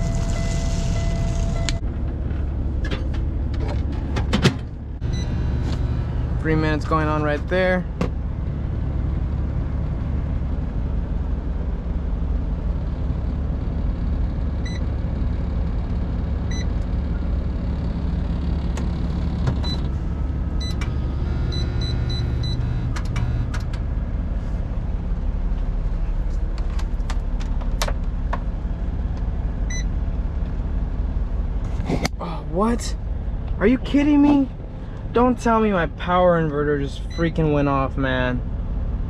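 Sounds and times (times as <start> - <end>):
short electronic beeps: 0.0 - 1.8, 5.0 - 5.6, 20.6 - 23.4
diesel engine idling: 0.0 - 39.0.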